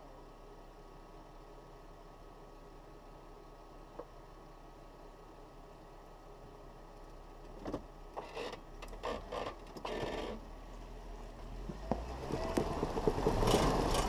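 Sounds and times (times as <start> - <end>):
low engine rumble: 0.0 - 14.0
tire crunching over rock and gravel: 7.5 - 14.0.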